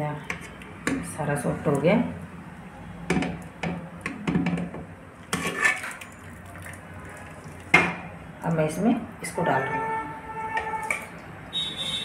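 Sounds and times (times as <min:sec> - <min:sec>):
ladle scraping metal pot: 0:05.3 - 0:06.3.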